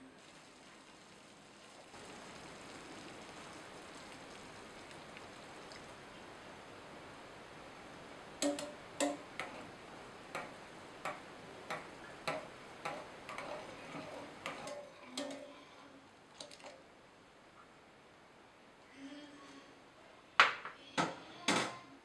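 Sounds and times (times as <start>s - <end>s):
metal utensil clinking in saucepan: 8.4s - 9.6s.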